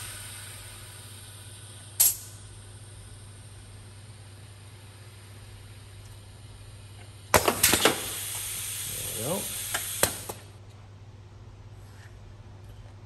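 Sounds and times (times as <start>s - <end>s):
compressed air hissing: 0.0s - 6.6s, 7.3s - 10.6s
pneumatic valves clicking: 1.9s - 2.5s, 7.0s - 10.5s.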